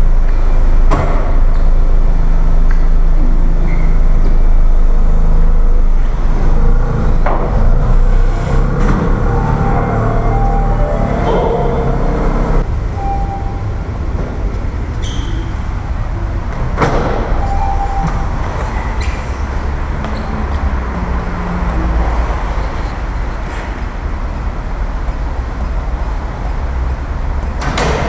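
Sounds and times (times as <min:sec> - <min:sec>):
car engine idling: 0:00.0 - 0:20.1.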